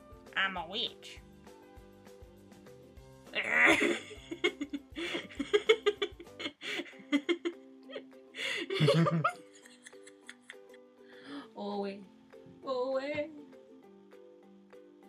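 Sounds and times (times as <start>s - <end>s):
quiet background music: 0.0s - 15.0s
man laughing: 3.4s - 10.8s.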